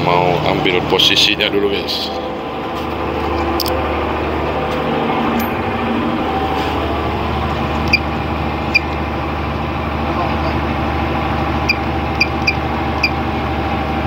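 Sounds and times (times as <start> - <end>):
diesel boat engine running: 0.0 - 14.0.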